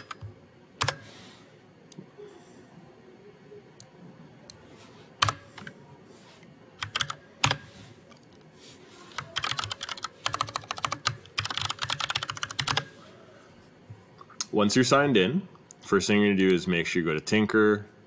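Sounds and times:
computer keyboard typing: 0.0 - 1.0, 5.2 - 5.7, 6.8 - 7.7, 9.1 - 12.9.

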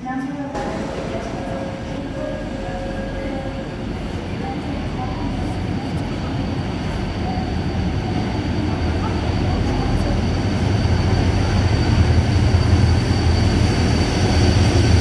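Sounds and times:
train rumble: 0.0 - 15.0
thin high whine: 0.6 - 5.6.

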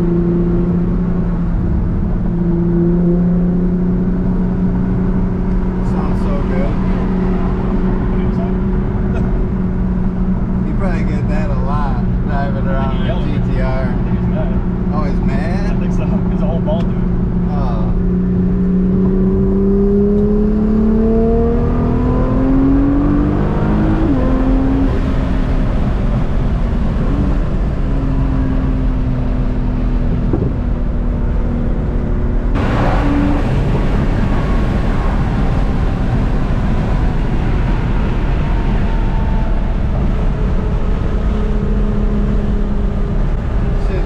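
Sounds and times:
car engine accelerating: 0.0 - 44.0
road and wind roar: 0.0 - 44.0
rush of noise: 32.5 - 44.0.

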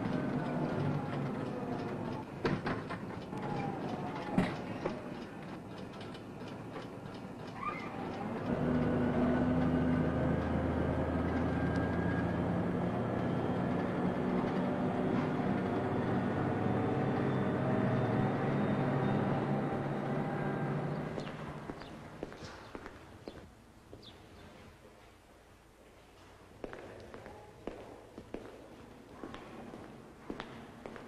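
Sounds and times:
vehicle engine humming: 0.0 - 23.4.

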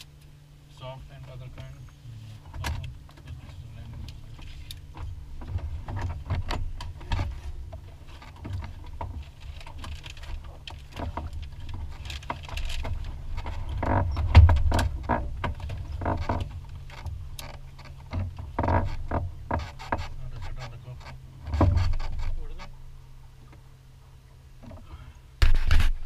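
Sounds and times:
steady low rumble: 0.0 - 26.0
knocks clicks and rustling: 2.4 - 22.8.

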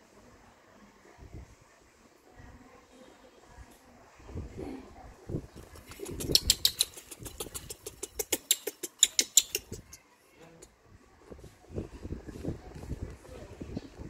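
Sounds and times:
baby monkey squeaking: 6.0 - 10.0.

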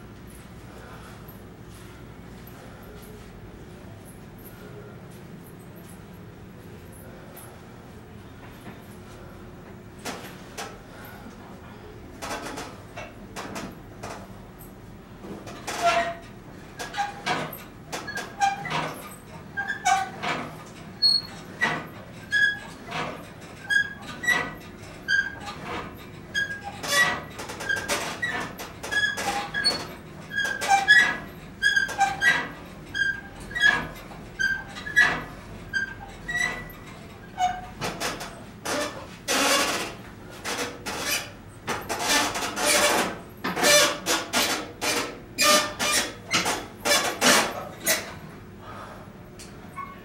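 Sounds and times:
cable machine squeaking and clicking: 15.4 - 48.4, 49.4 - 50.0.

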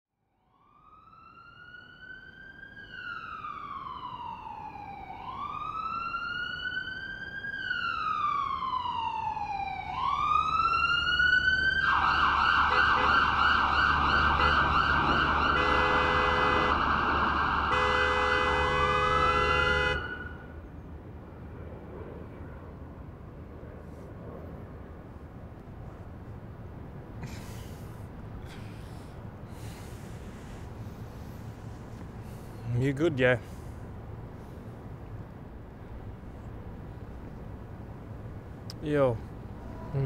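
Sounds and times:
emergency sirens wailing: 0.4 - 20.6
steady horn blasts: 12.6 - 13.3, 14.3 - 14.8, 15.5 - 16.8, 17.7 - 20.4.

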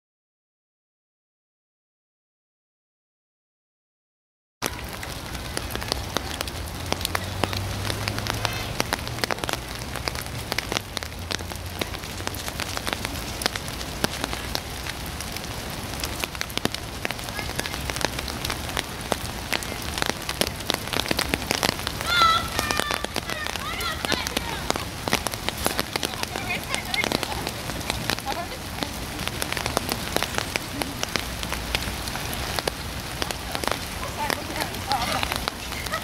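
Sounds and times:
rain pattering: 4.6 - 36.0.

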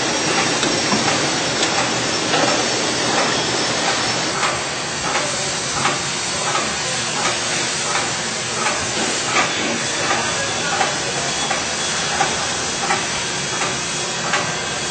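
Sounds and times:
filling machine hissing: 0.0 - 14.9.

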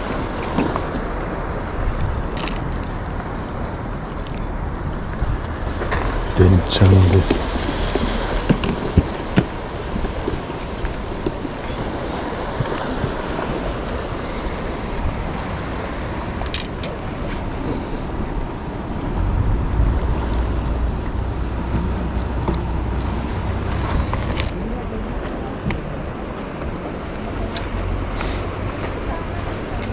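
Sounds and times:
wind on microphone: 0.0 - 24.7
sea washing against breakwater: 0.0 - 29.9
deep rumble: 13.6 - 26.2.

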